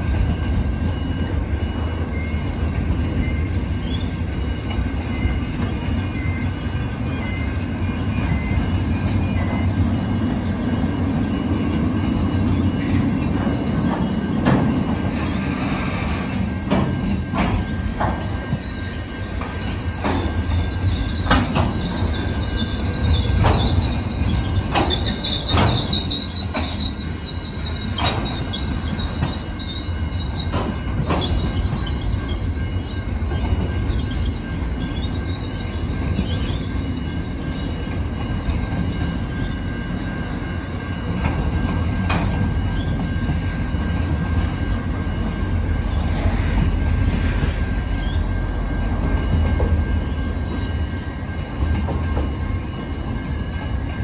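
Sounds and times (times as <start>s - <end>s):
freight train rumbling past: 0.0s - 54.0s
high wheel squeal: 0.2s - 53.9s
wheels clicking over rail joints: 19.3s - 32.4s.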